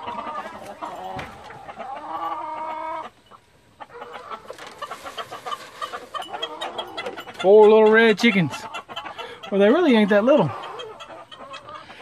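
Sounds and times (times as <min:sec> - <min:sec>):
hens clucking: 0:00.0 - 0:12.0.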